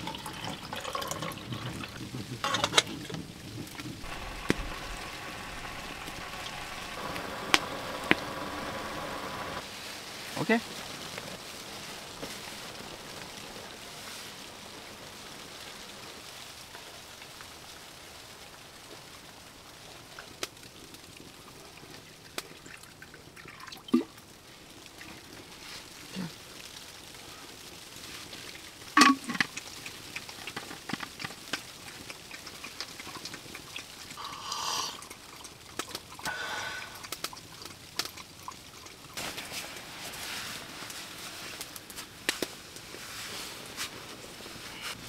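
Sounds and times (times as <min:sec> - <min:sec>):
drink pouring into cup: 0:00.0 - 0:02.8, 0:34.2 - 0:35.6
rain on tent: 0:00.0 - 0:45.0.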